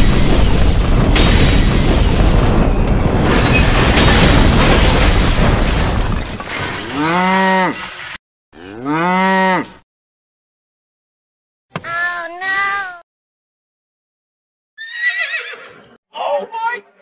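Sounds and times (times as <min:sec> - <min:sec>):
explosion blast: 0:00.0 - 0:06.5
cow mooing: 0:06.9 - 0:07.8, 0:08.6 - 0:09.8.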